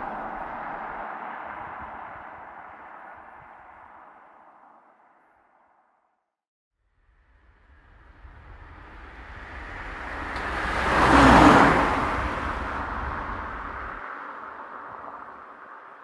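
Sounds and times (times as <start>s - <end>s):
road vehicle passing by: 0.0s - 5.8s, 7.2s - 16.0s.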